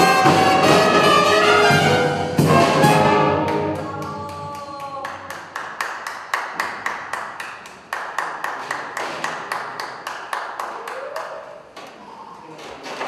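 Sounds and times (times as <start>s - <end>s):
drum strikes echoing: 0.0s - 4.6s.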